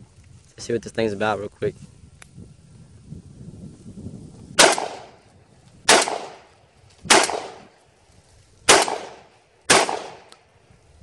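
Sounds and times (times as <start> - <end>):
shotgun shots with echo: 4.6 - 5.2, 5.9 - 6.5, 7.1 - 7.7, 8.7 - 10.3.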